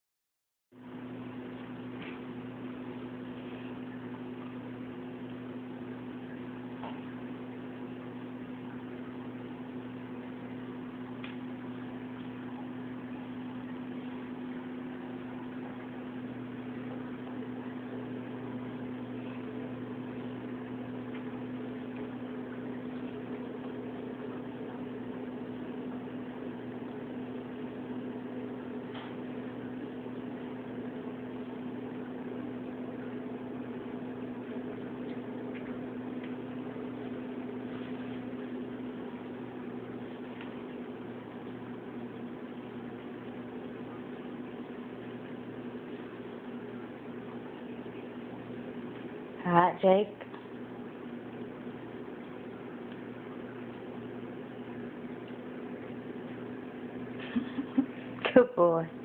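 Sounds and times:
household appliance humming: 0.8s - 59.0s.

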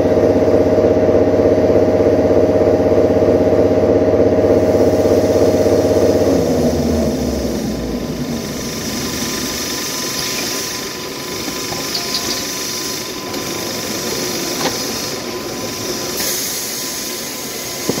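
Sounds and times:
faint machine whine: 0.0s - 18.0s
rewinding machine running: 0.0s - 18.0s
bright hiss: 4.7s - 18.0s.

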